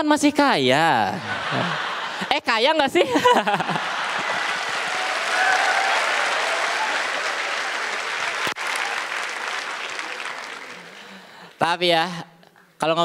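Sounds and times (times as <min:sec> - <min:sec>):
audience laughing: 0:01.1 - 0:08.4
audience applauding: 0:03.6 - 0:11.6.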